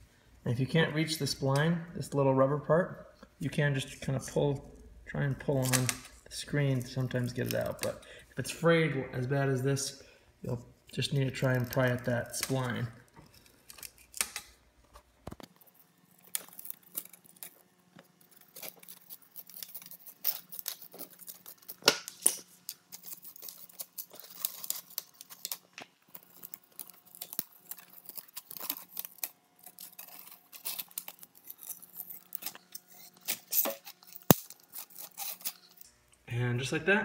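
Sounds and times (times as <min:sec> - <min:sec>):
screen mesh tearing: 0:13.3 - 0:14.6, 0:15.6 - 0:35.8.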